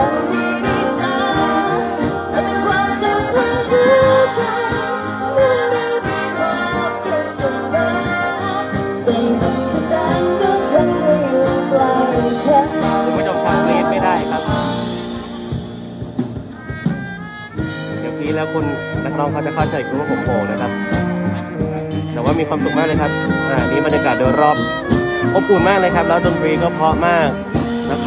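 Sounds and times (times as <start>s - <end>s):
woman singing: 0.0s - 15.3s
wind and string band: 0.0s - 28.0s.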